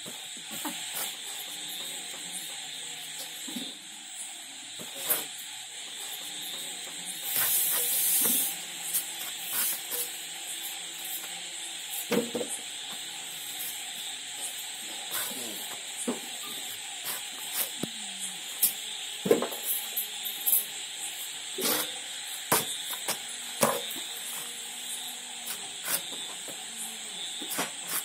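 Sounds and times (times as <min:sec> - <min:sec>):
steady hiss: 0:00.0 - 0:28.0.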